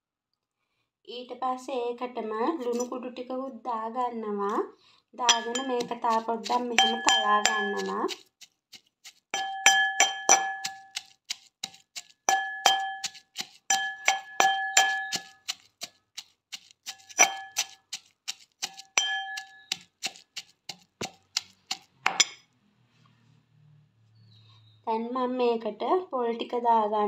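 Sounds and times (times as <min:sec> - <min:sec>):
metal pestle pounding in mortar: 0:05.3 - 0:08.2, 0:09.4 - 0:15.9, 0:16.5 - 0:22.4.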